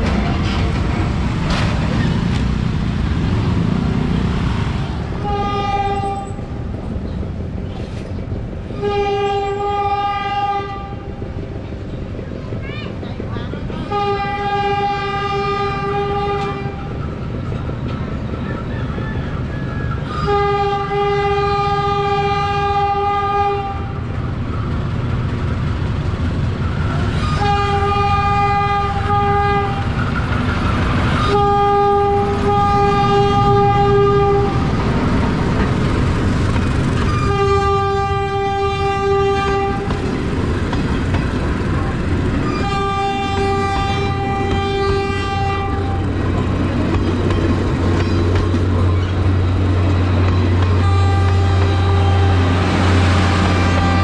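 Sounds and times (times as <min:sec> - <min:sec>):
train rumble: 0:00.0 - 0:54.0
locomotive horn blasts: 0:05.2 - 0:06.4, 0:08.7 - 0:11.1, 0:13.9 - 0:16.8, 0:20.1 - 0:24.0, 0:27.2 - 0:29.9, 0:31.2 - 0:34.7, 0:37.1 - 0:39.9, 0:42.4 - 0:46.1, 0:50.5 - 0:54.0
wheels clicking over rail joints: 0:34.7 - 0:52.0.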